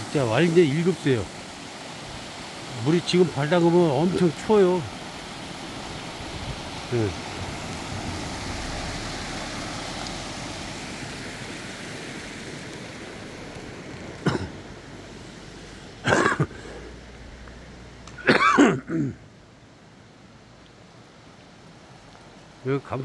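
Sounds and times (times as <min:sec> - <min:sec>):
stream rushing over rocks: 0:00.0 - 0:23.0
man coughing: 0:14.3 - 0:14.6, 0:16.0 - 0:16.6, 0:18.2 - 0:19.2.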